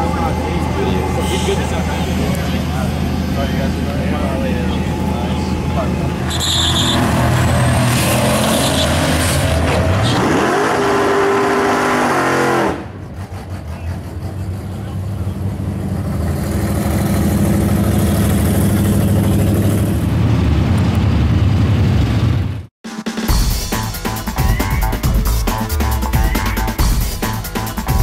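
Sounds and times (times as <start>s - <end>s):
drag racing cars accelerating: 0.0s - 22.4s
steady engine drone: 0.0s - 22.7s.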